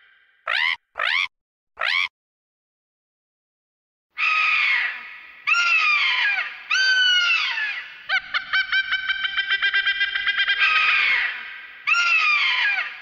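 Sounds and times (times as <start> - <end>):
creature calls falling in pitch: 0.5 - 2.1
fast stuttering calls: 0.5 - 2.1.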